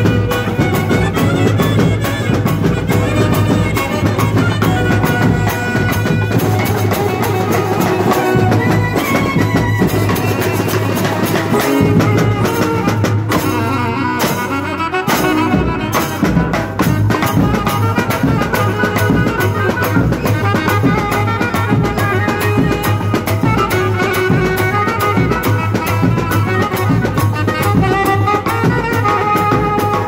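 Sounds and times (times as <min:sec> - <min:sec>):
brass band playing: 0:00.0 - 0:30.0
clarinet melody: 0:00.0 - 0:30.0
drums beating steady rhythm: 0:00.0 - 0:30.0.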